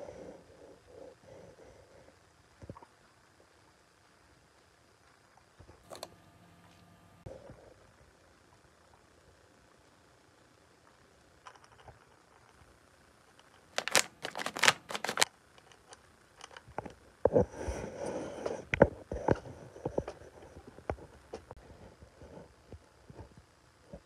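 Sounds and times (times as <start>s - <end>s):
plastic packaging crinkling: 13.6s - 15.3s.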